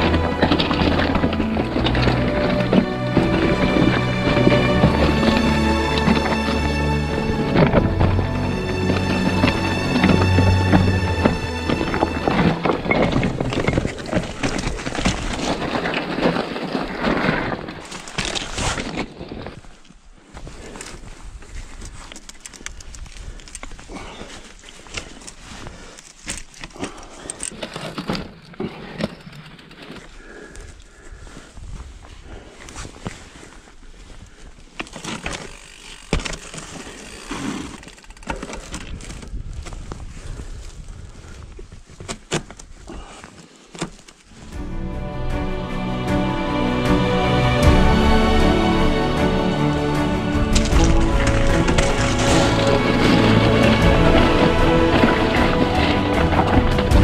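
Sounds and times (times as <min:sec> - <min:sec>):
tyres crunching on loose stone: 0:00.0 - 0:30.7, 0:34.6 - 0:40.8, 0:50.3 - 0:57.0
mountain bike rattling: 0:00.0 - 0:31.8, 0:32.4 - 0:44.6, 0:49.9 - 0:57.0.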